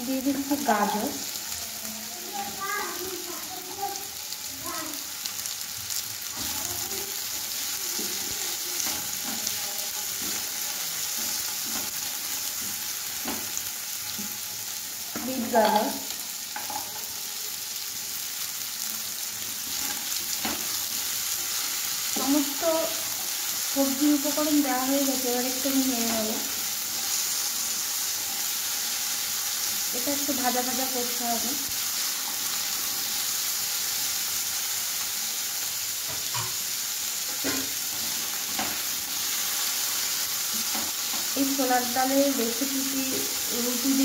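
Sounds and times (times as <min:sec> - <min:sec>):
vegetables sizzling in oil: 0:00.0 - 0:44.0
spatula scraping a pan: 0:06.3 - 0:13.6.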